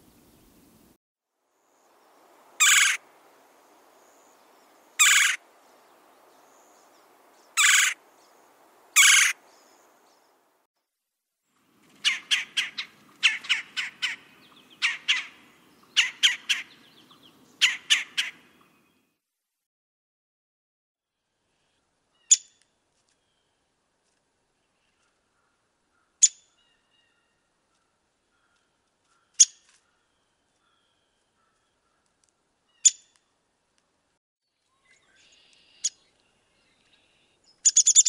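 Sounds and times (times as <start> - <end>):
woodpecker rolling calls: 2.5 - 3.0, 5.0 - 5.4, 7.5 - 8.0, 8.9 - 9.9, 11.8 - 18.8.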